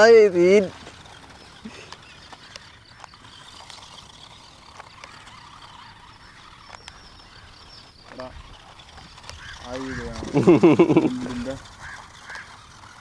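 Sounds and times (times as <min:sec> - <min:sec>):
toy car motor whir: 0:00.0 - 0:13.0
light clicks and knocks on stones: 0:00.7 - 0:10.6.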